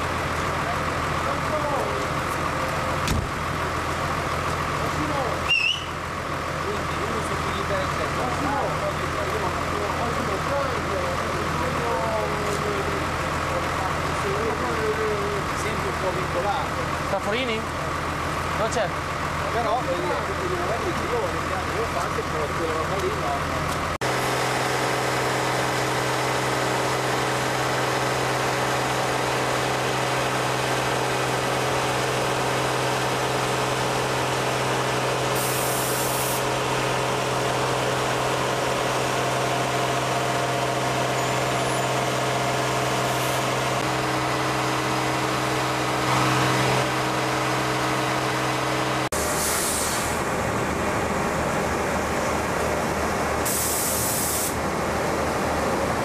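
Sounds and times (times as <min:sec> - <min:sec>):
concrete plant machinery drone: 0:00.0 - 0:56.0
air hiss bursts: 0:35.4 - 0:36.4, 0:49.2 - 0:50.2, 0:53.4 - 0:54.6.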